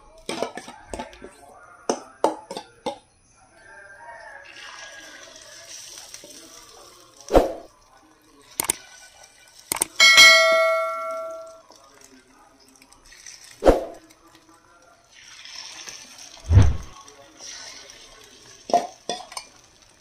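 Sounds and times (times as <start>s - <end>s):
batter sizzling in pan: 3.8s - 9.8s, 11.6s - 20.0s
spoon knocking metal bowl: 10.0s - 11.6s.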